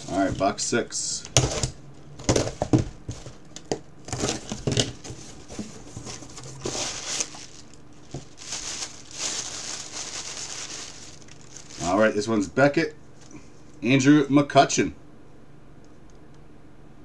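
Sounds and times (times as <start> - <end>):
cardboard flaps clicking and scraping: 1.4 - 9.9
wrapping paper rustling: 4.1 - 12.5.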